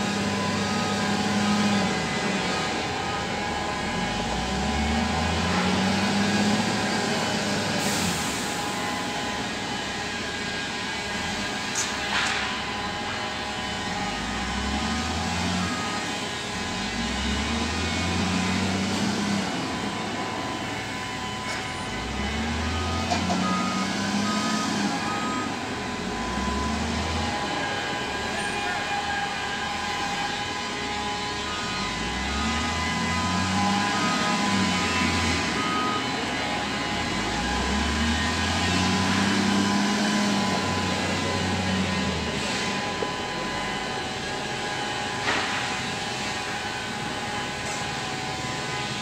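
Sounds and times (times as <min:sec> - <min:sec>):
reversing alarm beeping: 0:00.0 - 0:49.0
wheel loader diesel engine: 0:00.0 - 0:49.0.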